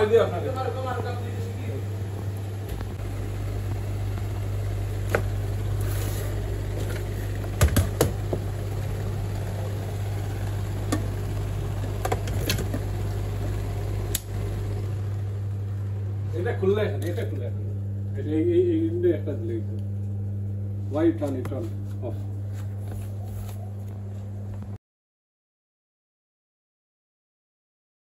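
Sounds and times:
low machine hum: 0.0s - 24.8s
sharp clicks and knocks: 6.8s - 8.5s, 11.8s - 12.9s.

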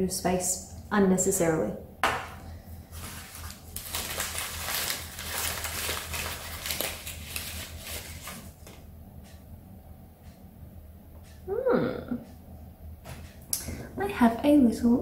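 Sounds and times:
wrapping rustling and crinkling: 2.8s - 8.8s.

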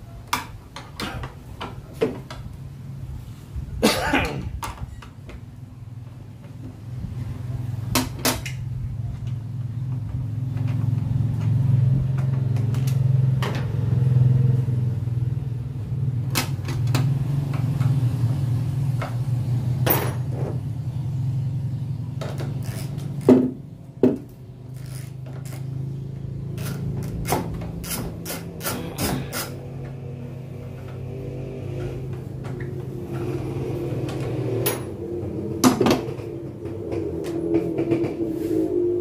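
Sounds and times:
low engine hum: 8.6s - 39.0s.

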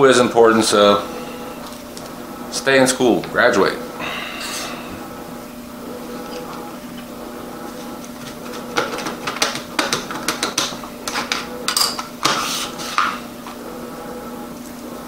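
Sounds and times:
low hum: 0.0s - 8.8s.

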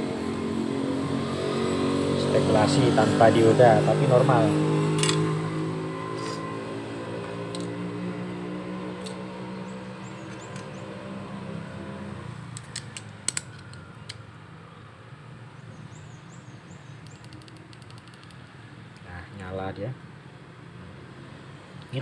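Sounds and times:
plastic and metal parts clicking: 12.5s - 14.2s, 17.1s - 18.4s.

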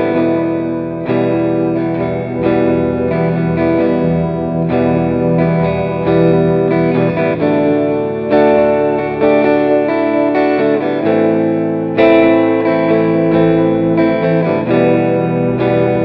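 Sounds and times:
guitar with effects: 0.0s - 16.0s.

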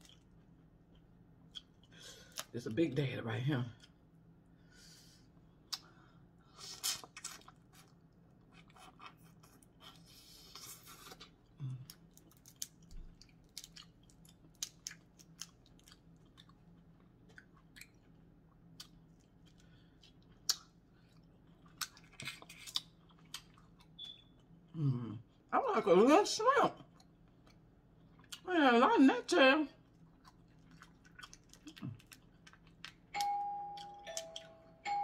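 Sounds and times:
chewing: 0.0s - 2.5s, 6.7s - 25.4s, 29.8s - 34.6s.

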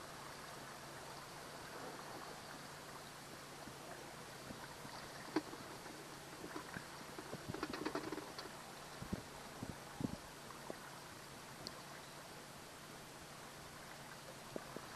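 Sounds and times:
water and wind noise: 0.0s - 14.9s.

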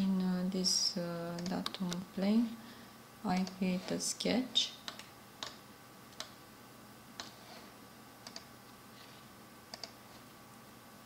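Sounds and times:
faint steady hum: 0.0s - 11.0s
computer mouse clicking: 1.4s - 2.0s, 3.4s - 3.6s, 4.8s - 6.4s, 7.2s - 7.6s, 8.2s - 10.2s.

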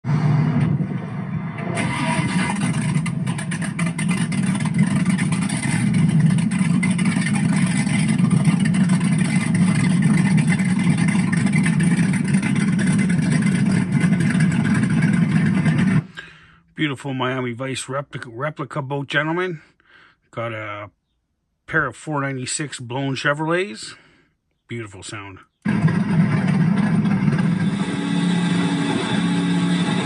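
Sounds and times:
powerboat engines droning: 0.0s - 16.1s, 25.7s - 30.0s.

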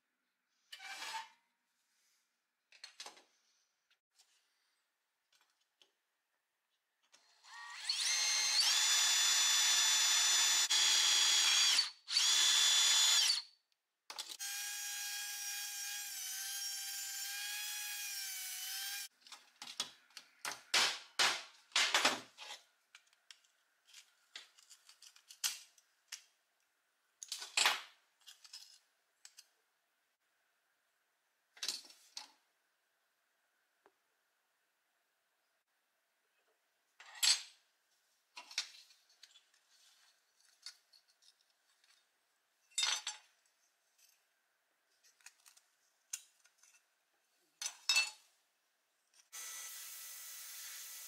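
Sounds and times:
rotary cut-off tool whining: 7.3s - 13.5s, 14.4s - 19.1s, 49.3s - 51.0s
electric drill whining: 7.4s - 13.4s, 14.4s - 19.1s, 49.3s - 51.0s.

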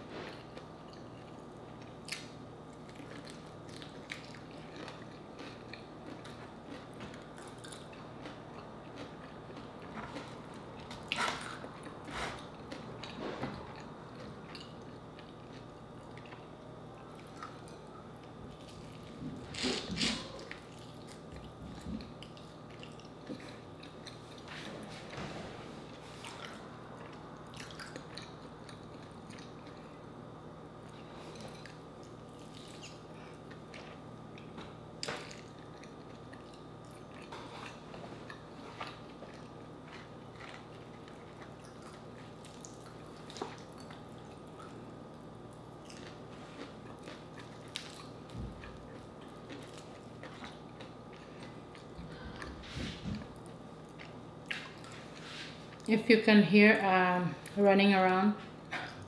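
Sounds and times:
faint steady hum: 0.0s - 59.0s
chewing and crunching: 0.1s - 56.0s.

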